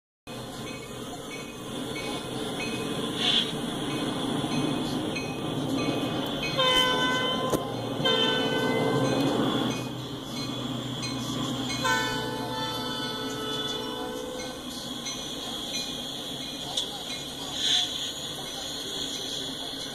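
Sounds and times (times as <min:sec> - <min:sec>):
train rumble: 0:00.3 - 0:19.9
locomotive air horn: 0:06.6 - 0:09.2, 0:11.9 - 0:14.6.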